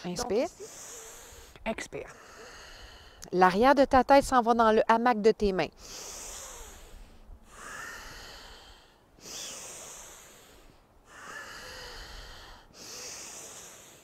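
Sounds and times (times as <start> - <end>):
woman breathing deeply: 0.5 - 3.3, 5.8 - 14.0.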